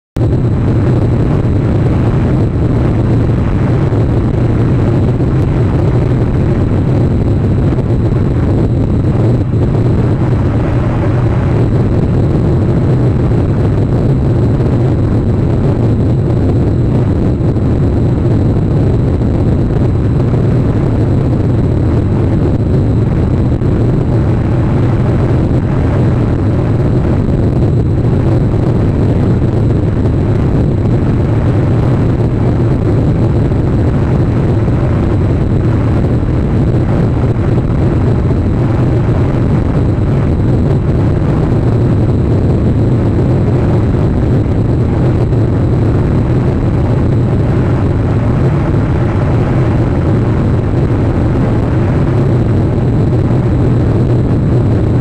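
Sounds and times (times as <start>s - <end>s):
loud low rumbling: 0.1s - 55.0s.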